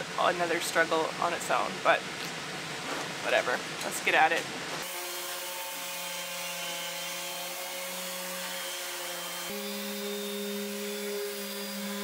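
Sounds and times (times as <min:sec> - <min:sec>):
electric sander on steel: 0:04.8 - 0:12.0.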